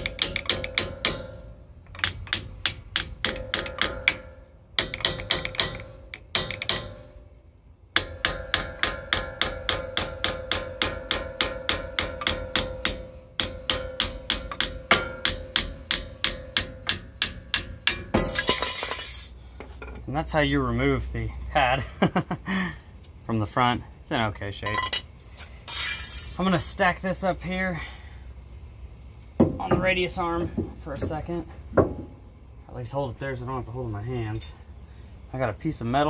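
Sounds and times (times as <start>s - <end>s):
hammer ringing on metal: 0.0s - 7.1s, 8.0s - 18.3s.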